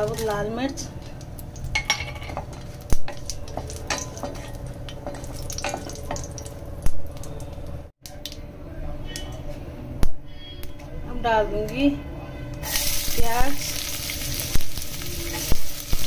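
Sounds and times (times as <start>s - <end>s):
spices frying in hot oil: 0.0s - 7.9s, 12.6s - 16.0s.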